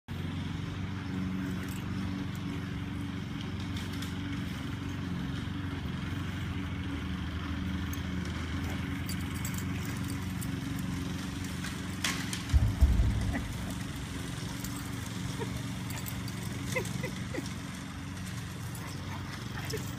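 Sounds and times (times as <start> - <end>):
loud low thumps: 12.5 - 14.9.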